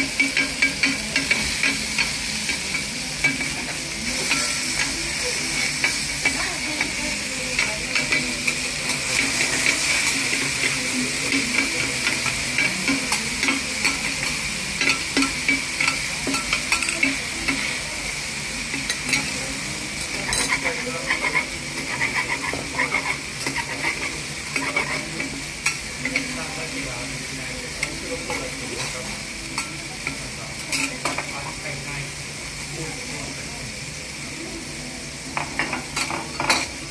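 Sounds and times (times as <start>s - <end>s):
food sizzling on griddle: 0.0s - 36.9s
metal spatulas scraping griddle: 20.2s - 25.2s.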